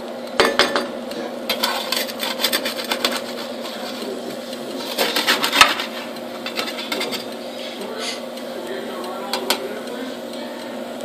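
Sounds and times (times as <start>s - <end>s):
turntable motor hum: 0.0s - 11.0s
metal spatula scraping pan: 1.5s - 8.3s.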